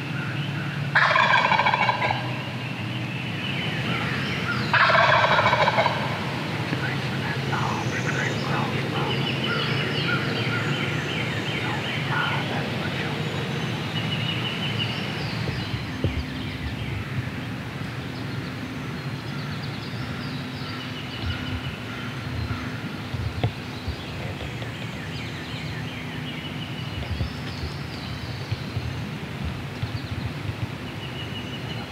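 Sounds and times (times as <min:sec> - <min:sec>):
turkey gobbling: 0:01.0 - 0:02.5, 0:04.7 - 0:10.7
steady hissing background: 0:05.9 - 0:31.9.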